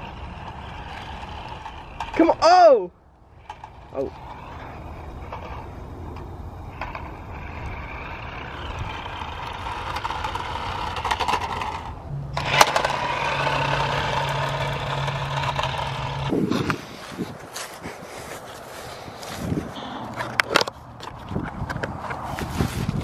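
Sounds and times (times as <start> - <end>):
steady low hum: 0.0 - 22.1
electric motor and gears whirring: 0.0 - 23.0.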